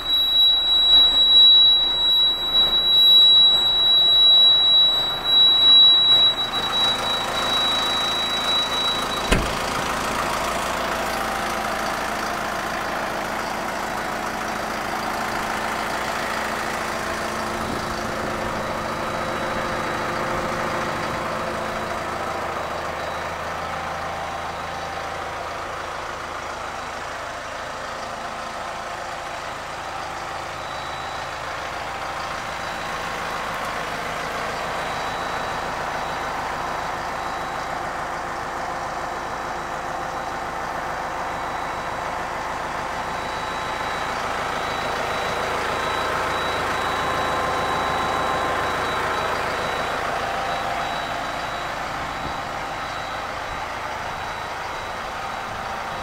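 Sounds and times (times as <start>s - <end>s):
thin high whine: 0.0s - 9.9s
tractor diesel engine idling: 0.0s - 56.0s.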